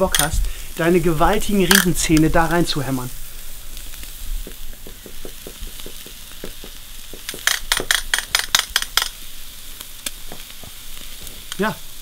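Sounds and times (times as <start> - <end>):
steak sizzling on a grill: 0.0 - 12.0
loud sharp clicks: 4.9 - 9.2.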